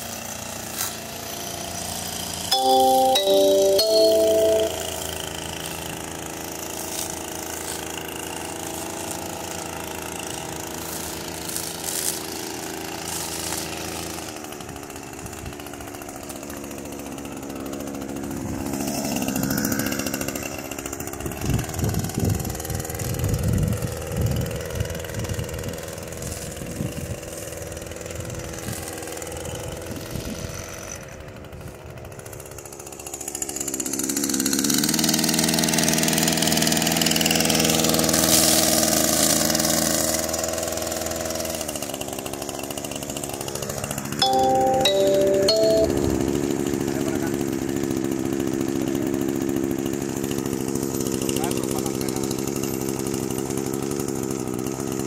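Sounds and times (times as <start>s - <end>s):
string trimmer engine: 0.0s - 2.6s, 5.0s - 55.0s.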